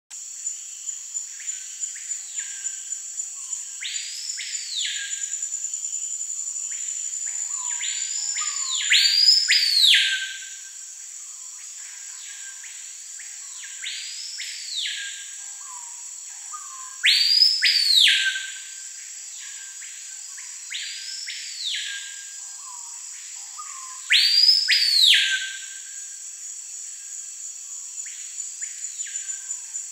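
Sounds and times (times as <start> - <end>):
high insect drone: 0.2 - 29.9
bird whistling song: 7.4 - 10.6, 16.5 - 18.7, 23.5 - 25.9.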